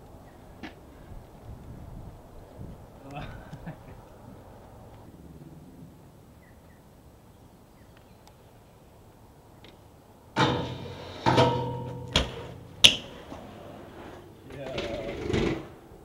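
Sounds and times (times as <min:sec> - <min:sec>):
bike hard impacts: 0:10.4 - 0:13.4.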